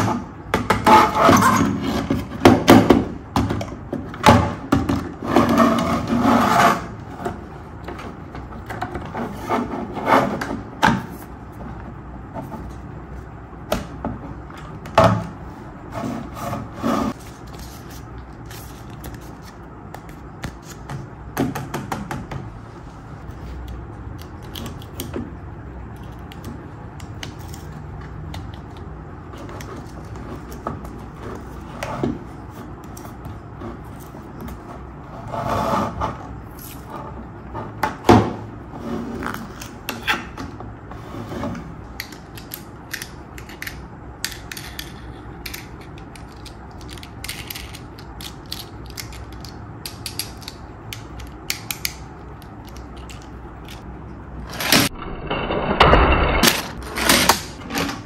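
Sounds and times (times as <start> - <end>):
plastic toy parts clicking: 42.0 - 53.8.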